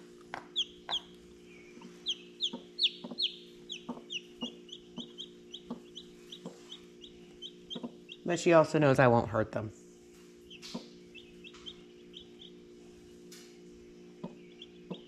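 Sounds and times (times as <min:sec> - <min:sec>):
steady low hum: 0:00.0 - 0:15.0
chick peeping: 0:00.3 - 0:08.4, 0:10.4 - 0:15.0.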